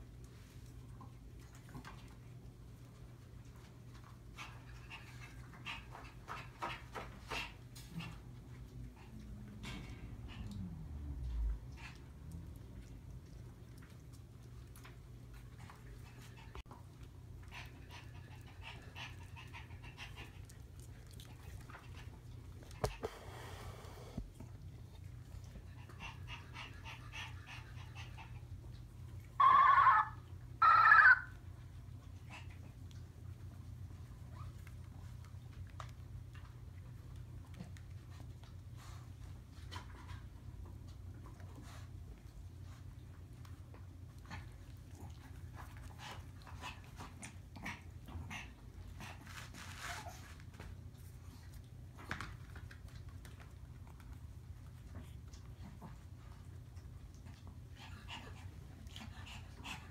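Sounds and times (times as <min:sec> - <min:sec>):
small paws scratching on pad: 0:00.0 - 0:10.7, 0:11.3 - 0:30.0, 0:30.6 - 0:59.9
puppy crying: 0:29.4 - 0:31.4.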